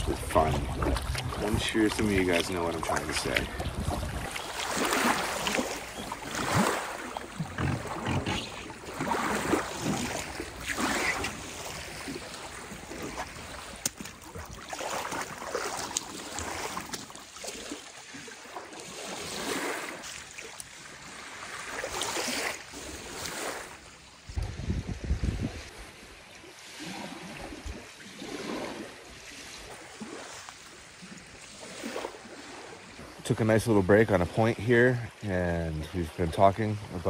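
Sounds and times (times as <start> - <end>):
lake waves lapping: 0.0 - 37.0
wind: 0.0 - 37.0.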